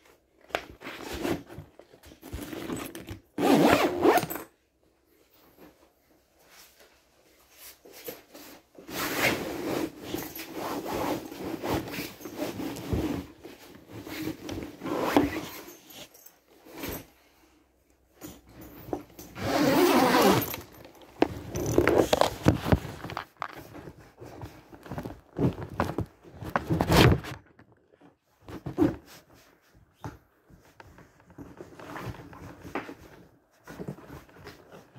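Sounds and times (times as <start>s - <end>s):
rustling and scraping handling noise: 0.0s - 34.9s.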